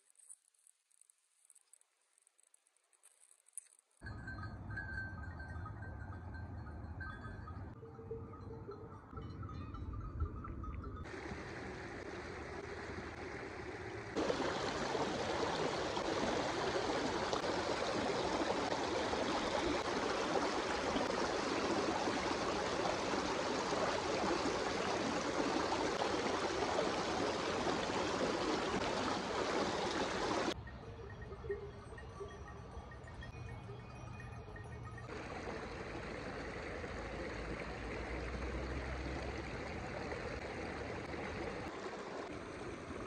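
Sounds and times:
river water rushing: 11.1s - 30.6s, 35.1s - 43.0s.

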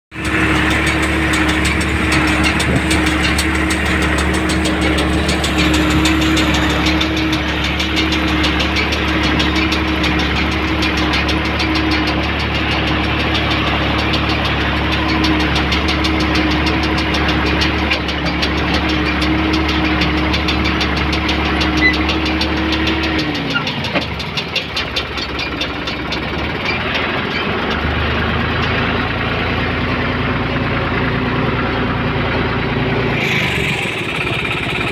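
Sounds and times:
tractor diesel engine running: 0.1s - 34.9s
steady whine: 0.2s - 15.8s.

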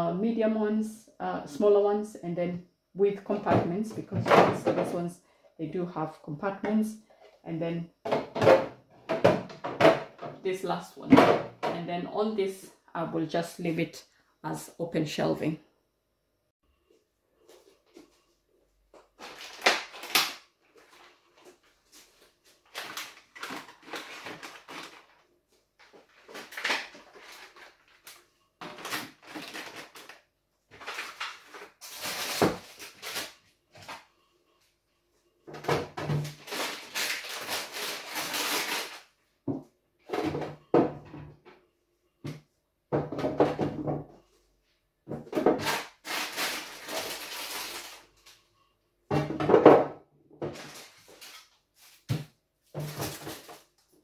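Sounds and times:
plastic containers clattering: 3.4s - 5.1s, 8.0s - 10.4s, 22.6s - 25.2s, 25.8s - 34.1s, 49.1s - 51.4s, 52.1s - 53.7s
food packaging rustling: 19.0s - 34.1s, 36.3s - 39.2s, 45.6s - 48.4s, 50.5s - 52.2s, 52.8s - 54.0s.

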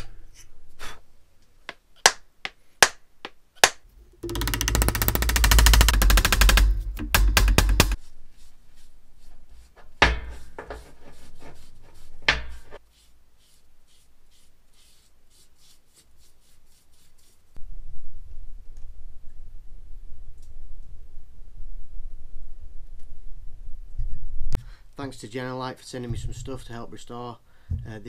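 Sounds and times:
mallet tapping hammer head: 3.6s - 8.0s
heavy knocks: 3.9s - 8.0s.

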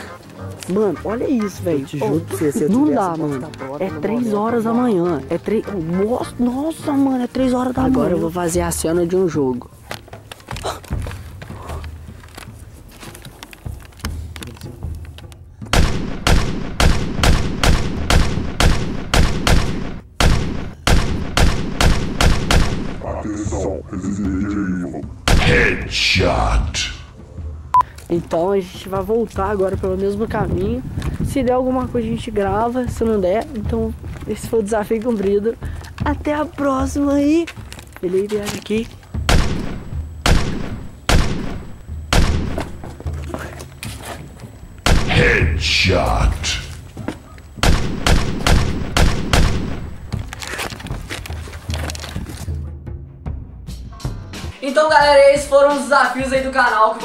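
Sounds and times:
gunshot sound effects: 15.8s - 23.0s, 25.3s - 25.8s, 39.3s - 42.8s, 44.9s - 45.6s, 47.6s - 49.8s
video game gunshot effects: 25.3s - 25.8s, 44.9s - 45.6s, 47.6s - 49.8s.

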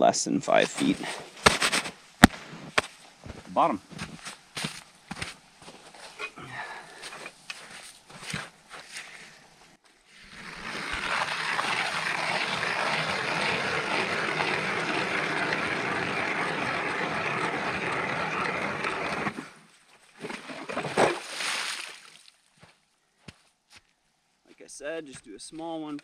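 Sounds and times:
ice auger grinding through ice: 10.1s - 19.6s
water splash: 20.2s - 22.2s.

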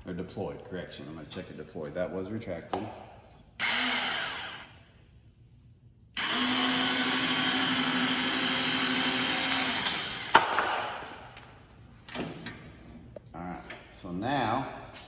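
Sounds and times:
electric actuator motor whine: 3.6s - 4.7s, 6.2s - 10.3s.

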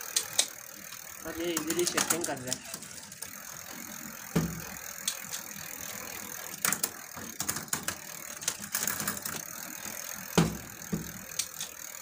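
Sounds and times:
bicycle chain running through gears: 0.0s - 12.0s
clicking and ticking: 10.7s - 11.8s.

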